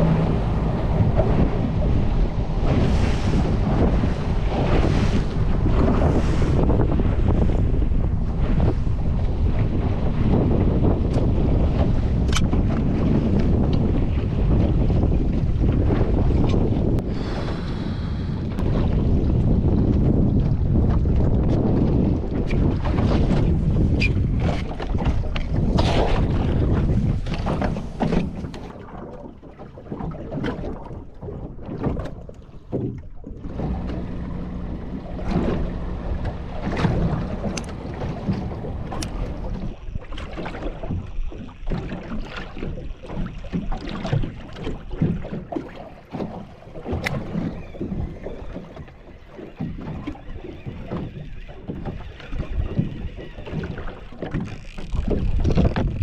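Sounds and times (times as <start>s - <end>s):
water slapping against hull: 0.0s - 56.0s
wind buffeting microphone: 0.0s - 56.0s.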